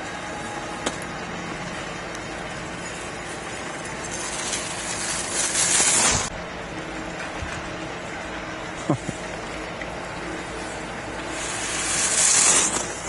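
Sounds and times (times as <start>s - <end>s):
steady low hum: 0.0s - 13.0s
skis scraping across snow: 4.1s - 6.3s, 11.4s - 13.0s.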